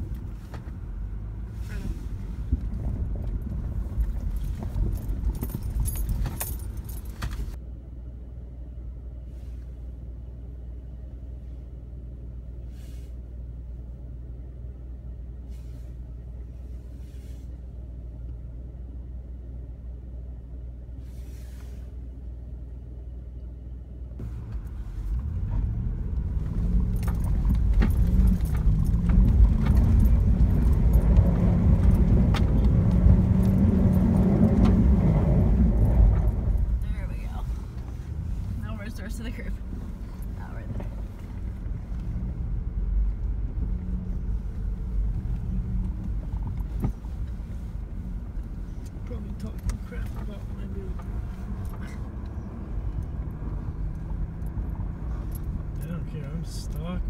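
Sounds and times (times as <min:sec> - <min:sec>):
car engine running: 0:00.0 - 0:57.0
engine revving: 0:24.2 - 0:47.1.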